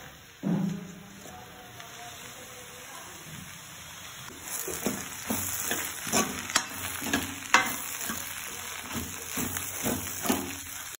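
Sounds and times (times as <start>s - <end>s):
food sizzling in pan: 0.0s - 10.9s
spoon scraping and knocking pan: 4.3s - 10.9s.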